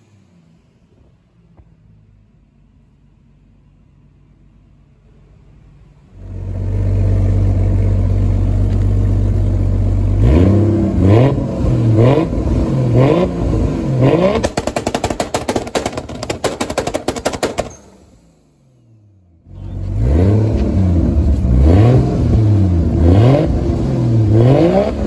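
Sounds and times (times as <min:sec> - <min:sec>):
car engine idling and revving: 0:00.0 - 0:25.0
exhaust crackling and popping: 0:07.5 - 0:10.5, 0:11.2 - 0:18.0.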